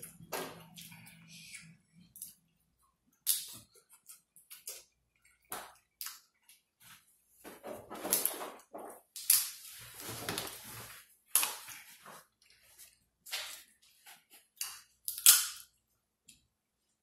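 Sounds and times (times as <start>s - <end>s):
shells cracking and crunching: 14.6s - 15.7s.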